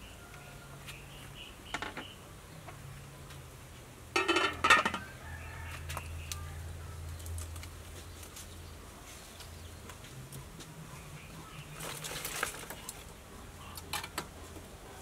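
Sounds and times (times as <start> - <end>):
pot lid clattering onto metal pot: 4.2 - 5.0.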